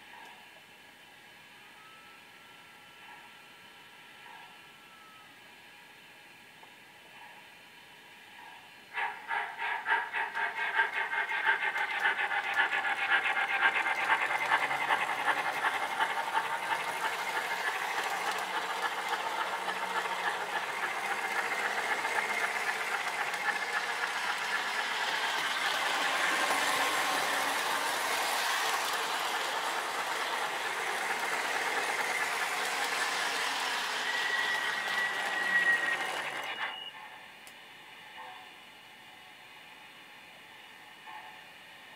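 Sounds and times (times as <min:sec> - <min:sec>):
motor and wheels whirring: 0:08.3 - 0:38.5
model train steam chuffing: 0:08.9 - 0:36.8.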